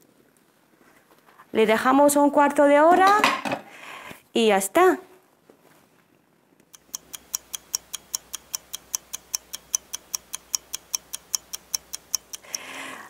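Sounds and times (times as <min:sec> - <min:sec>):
fast clock ticking: 0:06.8 - 0:12.8.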